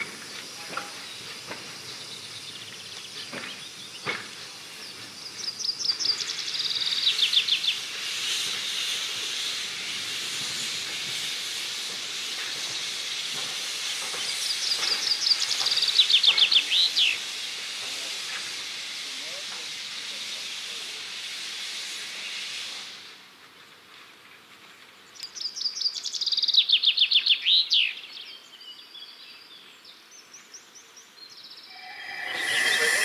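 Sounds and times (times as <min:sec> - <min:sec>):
steam locomotive hissing: 0:00.0 - 0:23.4, 0:31.7 - 0:33.0.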